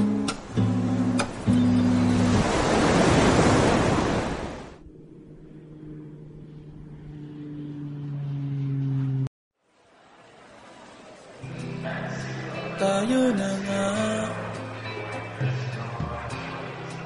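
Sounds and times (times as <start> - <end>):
strummed acoustic guitar chords: 0.0 - 2.4
breaking surf rush: 1.3 - 4.8
held low notes: 4.8 - 9.3.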